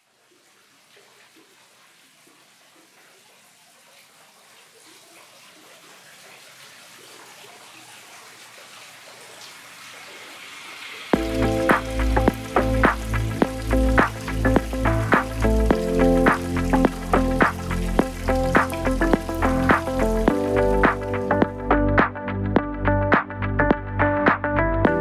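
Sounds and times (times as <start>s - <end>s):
faint drips: 0.0s - 21.6s
water-like rushing hiss: 4.0s - 21.4s
music with deep bass and beat: 11.2s - 25.0s.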